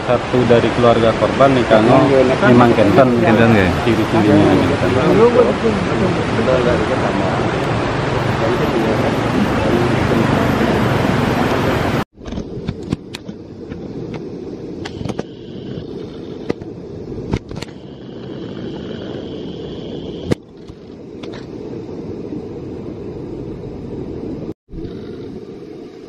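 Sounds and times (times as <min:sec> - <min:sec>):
fast-flowing river rushing: 0:00.0 - 0:12.0
wind on microphone: 0:00.0 - 0:26.0.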